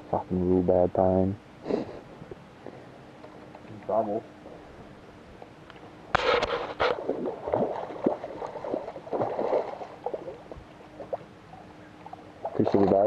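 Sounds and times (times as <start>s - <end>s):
fish splashing in water: 6.2s - 11.4s
water gurgles: 6.2s - 13.0s.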